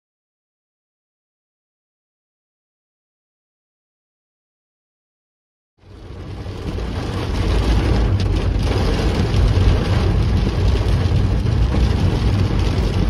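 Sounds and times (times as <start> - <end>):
heavy rain on car roof: 5.8 - 13.0
moving car rumble: 5.8 - 13.0.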